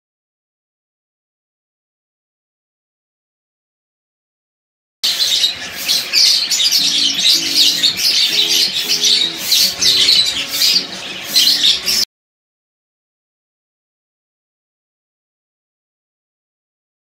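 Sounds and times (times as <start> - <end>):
budgerigars chattering: 5.0 - 12.0
low background music: 6.7 - 12.0.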